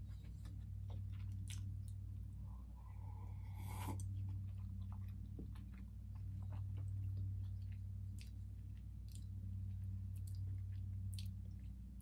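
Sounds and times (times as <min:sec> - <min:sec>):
steady low hum: 0:00.0 - 0:12.0
mouth chewing with wet clicks: 0:00.2 - 0:02.3, 0:03.6 - 0:12.0
slurping sip of tea: 0:03.5 - 0:04.0.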